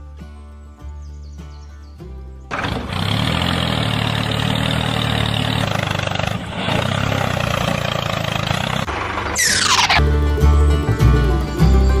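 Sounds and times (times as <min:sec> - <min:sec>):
tractor engine idling: 0:02.5 - 0:12.0.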